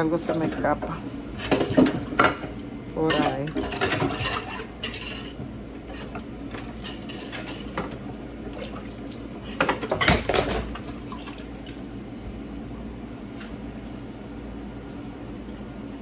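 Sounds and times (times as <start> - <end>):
metal pots and pans clattering: 0.1 - 8.0, 9.4 - 10.9.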